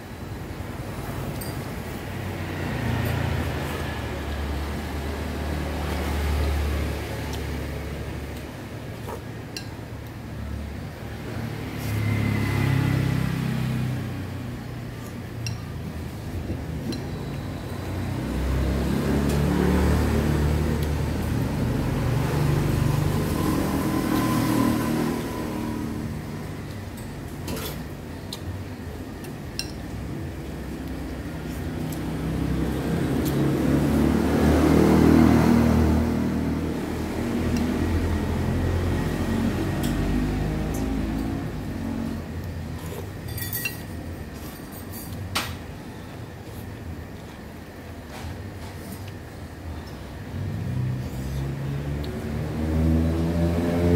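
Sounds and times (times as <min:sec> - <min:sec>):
vehicle engines passing: 0:00.0 - 0:53.9
dishes and cutlery clinking: 0:43.0 - 0:45.2.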